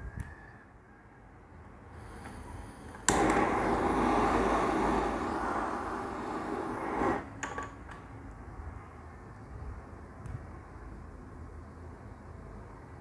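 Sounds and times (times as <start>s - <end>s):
blowtorch flame hissing: 2.0s - 7.5s
blowtorch ignition click: 2.2s - 7.5s.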